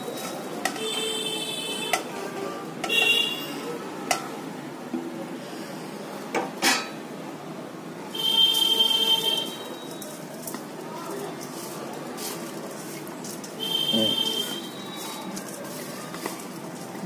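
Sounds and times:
steel plate and bowl clinking: 0:06.6 - 0:07.0.

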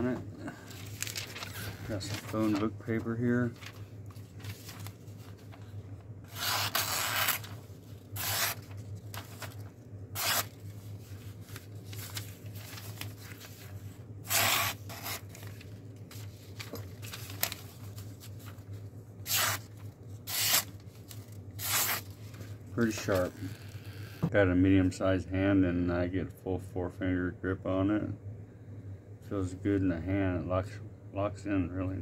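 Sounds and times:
knife slicing paper: 0:06.3 - 0:07.6, 0:08.2 - 0:09.6, 0:10.2 - 0:10.6, 0:14.2 - 0:15.6, 0:19.2 - 0:19.7, 0:20.3 - 0:20.7, 0:21.6 - 0:22.1.

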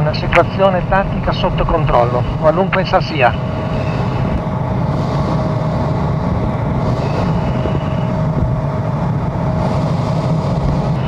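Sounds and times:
jet engine drone: 0:00.0 - 0:11.0.

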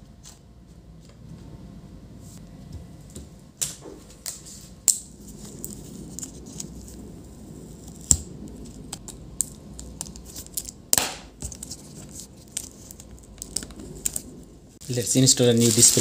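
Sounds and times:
scraping rustle: 0:11.4 - 0:16.0.

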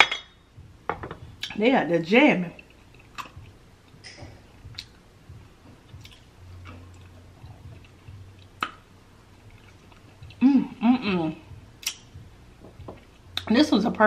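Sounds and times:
soft chewing: 0:02.5 - 0:10.4
lip smacks: 0:02.6 - 0:05.0, 0:05.8 - 0:08.9, 0:11.8 - 0:12.2.

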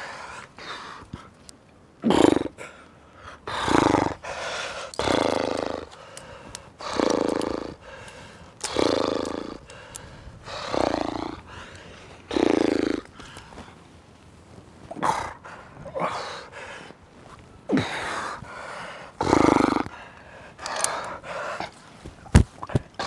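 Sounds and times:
climber grunting with effort: 0:03.4 - 0:13.4, 0:14.9 - 0:16.8, 0:17.7 - 0:21.8.

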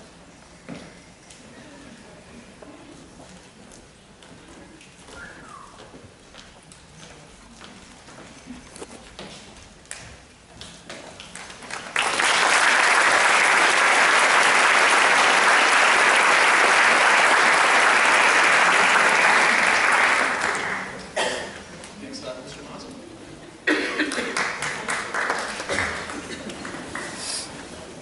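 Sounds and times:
audience applauding: 0:11.4 - 0:21.1, 0:24.0 - 0:27.5.

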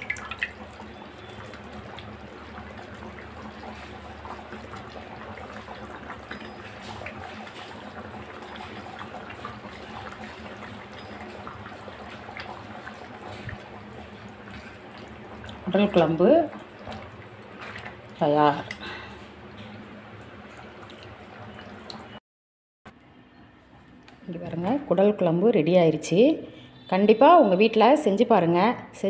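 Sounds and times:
curry bubbling with pops: 0:00.0 - 0:22.2.

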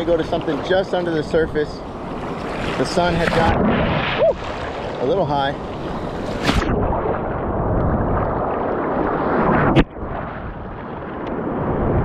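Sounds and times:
surf washing and splashing: 0:00.0 - 0:12.0.

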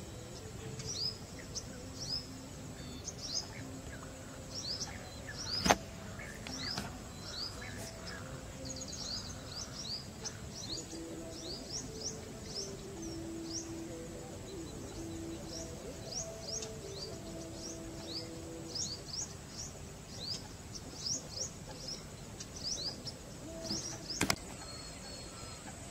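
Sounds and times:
birds chirping: 0:00.0 - 0:25.9
soft background music: 0:00.0 - 0:25.9
sharp click: 0:05.6 - 0:05.8, 0:23.7 - 0:24.4.

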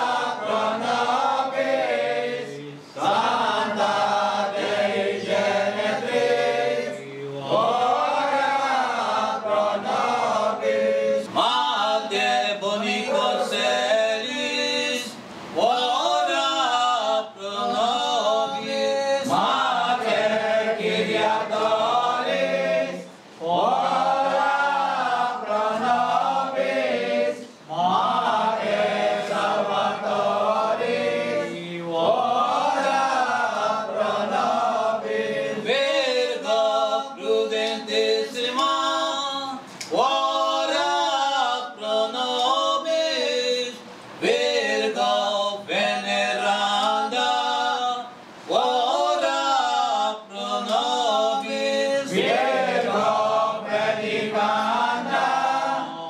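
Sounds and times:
group singing a hymn unaccompanied: 0:00.0 - 0:56.0.

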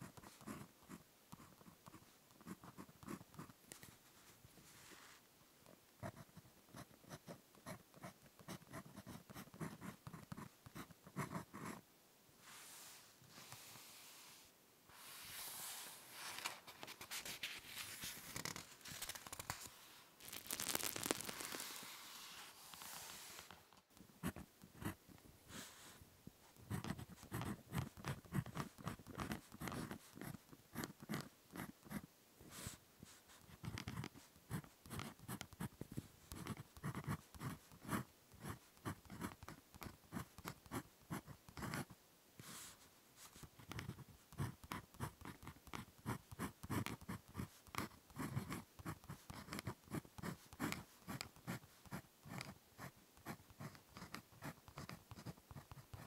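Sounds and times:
pen scratching on paper: 0:00.0 - 0:03.9, 0:06.0 - 0:11.8, 0:24.2 - 0:26.0, 0:26.6 - 0:32.7, 0:33.3 - 0:41.9, 0:43.6 - 0:56.0
paper rustling: 0:15.2 - 0:23.8.

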